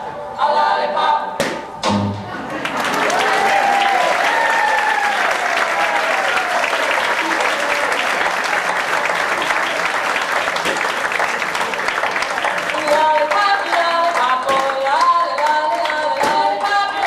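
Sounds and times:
high cheering voices: 0:02.4 - 0:13.8
audience applauding: 0:02.4 - 0:17.0.

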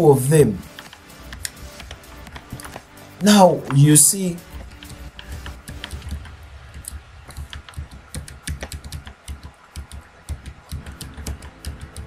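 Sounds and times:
keyboard key clicks: 0:04.7 - 0:12.0.

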